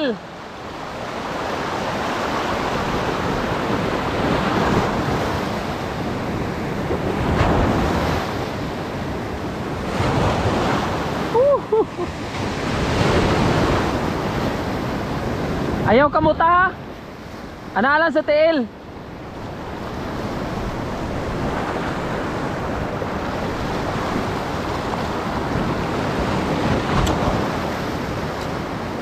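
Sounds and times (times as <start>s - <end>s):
person calling out: 0.0s - 0.2s, 11.3s - 11.8s
surf breaking on shore: 0.0s - 29.0s
wind buffeting microphone: 18.9s - 29.0s.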